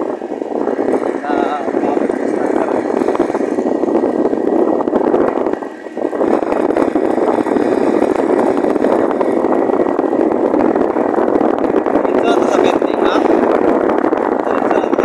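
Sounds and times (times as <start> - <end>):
motorcycle road noise: 0.0 - 15.0
wind rush on microphone: 0.0 - 15.0.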